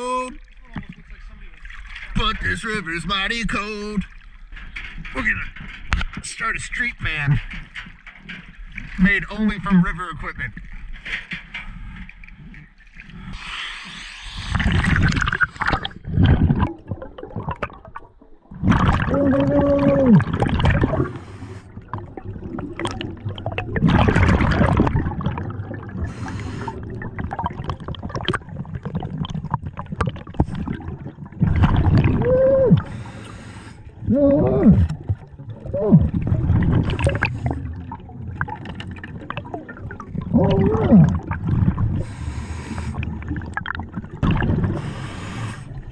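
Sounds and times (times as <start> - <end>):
rush of exhaled bubbles: 13.0 - 45.9
regulator hiss on inhale: 13.4 - 14.7, 32.9 - 33.9, 42.0 - 43.0, 44.8 - 45.8.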